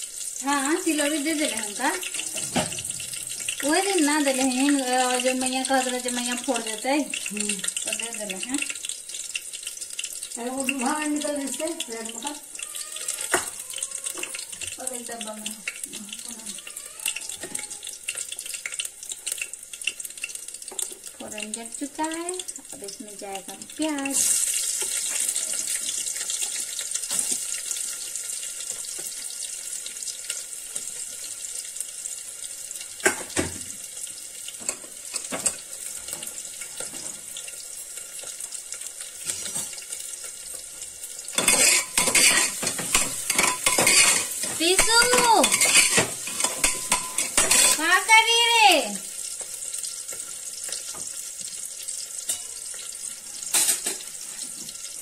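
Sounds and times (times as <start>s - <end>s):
steel utensils clattering and scraping: 41.4s - 47.9s.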